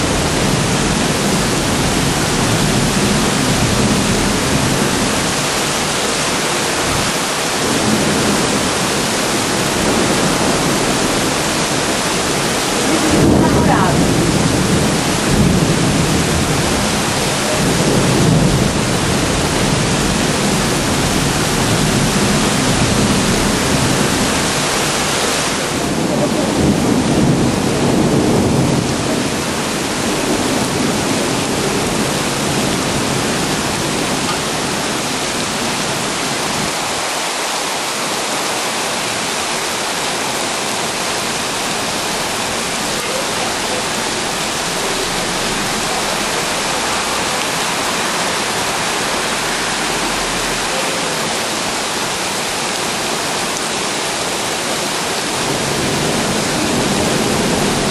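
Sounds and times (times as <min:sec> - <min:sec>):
heavy rain: 0:00.0 - 0:57.9
low thunder rumble: 0:06.8 - 0:36.8.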